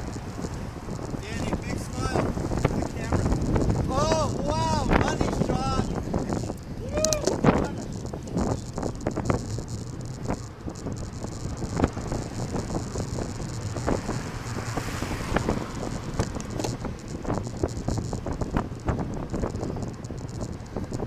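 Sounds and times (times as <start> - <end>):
road rumble: 0.0 - 21.0
wind noise on microphone: 0.0 - 21.0
car passing: 8.1 - 20.6.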